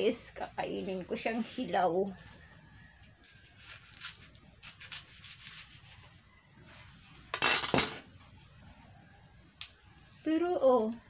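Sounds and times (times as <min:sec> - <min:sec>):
fruit skin rustling: 0:03.2 - 0:06.2
fruit tearing crack: 0:03.6 - 0:05.8.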